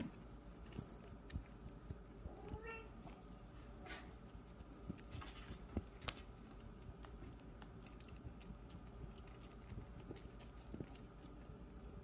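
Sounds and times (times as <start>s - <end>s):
faint small clicks and taps: 0.0s - 3.3s.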